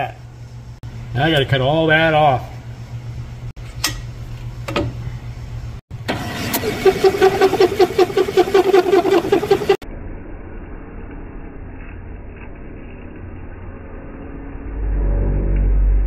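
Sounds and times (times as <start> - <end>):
machine hum: 4.6 - 11.0
valve seat cutter chattering: 6.5 - 9.8.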